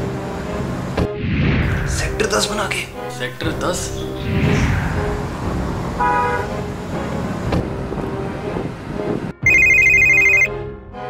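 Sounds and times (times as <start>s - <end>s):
mobile phone ringing: 9.4s - 10.5s.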